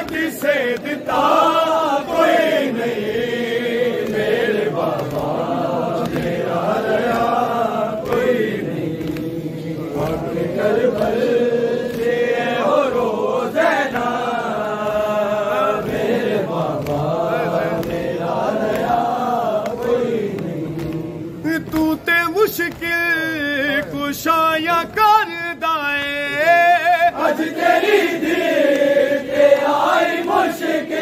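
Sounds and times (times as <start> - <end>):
men chanting together: 0.0 - 31.0
man singing a lament: 20.6 - 27.7.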